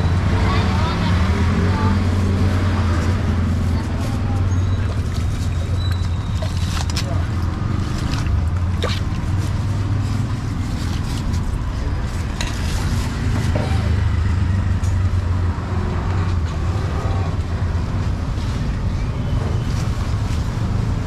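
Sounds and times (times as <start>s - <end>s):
faint voices: 0.0s - 8.6s
low engine hum: 0.0s - 21.0s
street din: 0.0s - 21.0s.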